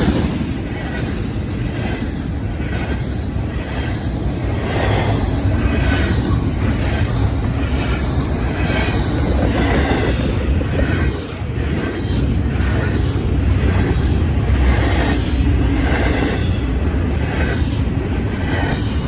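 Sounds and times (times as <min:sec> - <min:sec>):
train wheels rumbling on rails: 0:00.0 - 0:19.0.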